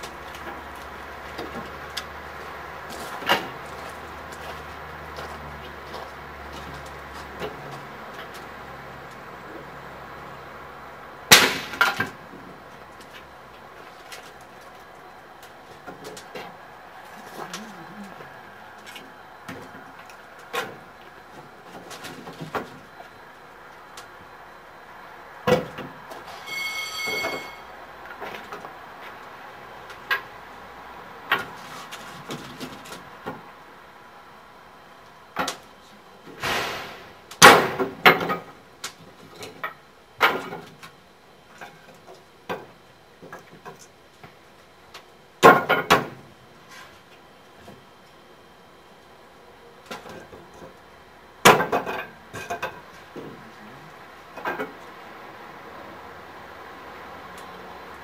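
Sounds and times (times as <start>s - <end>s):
short high squeak: 26.3s - 27.7s.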